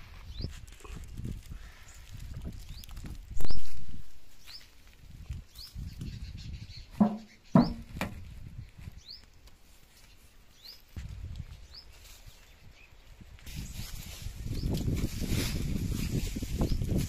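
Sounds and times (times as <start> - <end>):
bird chirping: 5.5 - 8.1
hollow metallic knocks: 7.0 - 8.2.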